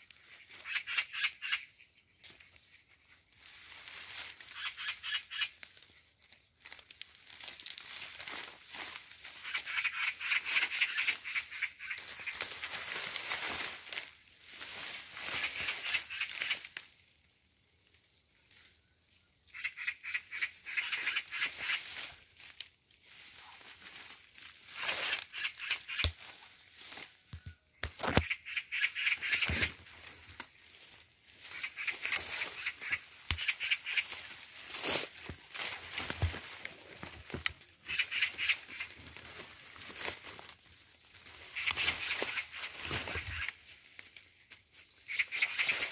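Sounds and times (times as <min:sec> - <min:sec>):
magpies chattering: 0:00.3 - 0:02.0, 0:04.5 - 0:05.6, 0:09.3 - 0:12.5, 0:15.3 - 0:16.7, 0:19.5 - 0:21.9, 0:24.8 - 0:26.1, 0:28.0 - 0:29.8, 0:31.4 - 0:34.4, 0:37.8 - 0:39.0, 0:41.4 - 0:43.6, 0:45.0 - 0:45.9.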